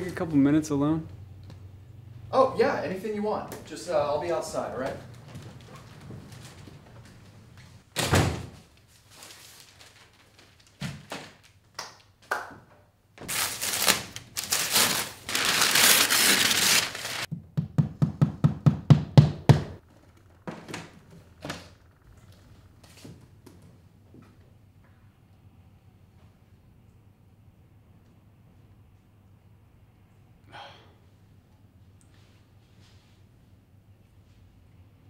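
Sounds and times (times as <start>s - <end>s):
door thudding shut: 8.0s - 8.6s
cloth rustling: 13.3s - 17.3s.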